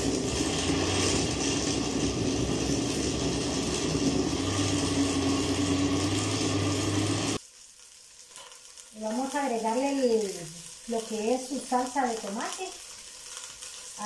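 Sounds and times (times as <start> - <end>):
blender motor running: 0.0 - 7.4.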